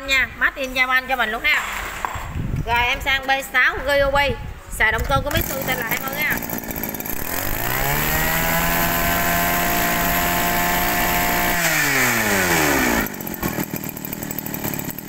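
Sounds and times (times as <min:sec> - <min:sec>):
small petrol engine revving: 0:05.3 - 0:15.0.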